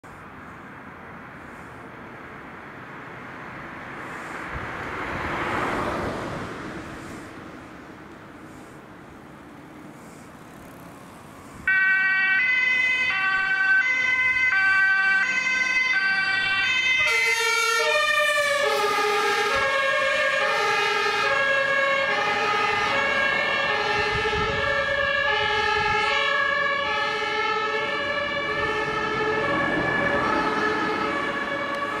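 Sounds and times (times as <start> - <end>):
faint traffic noise: 0.0 - 32.0
two-tone ambulance siren: 11.6 - 32.0.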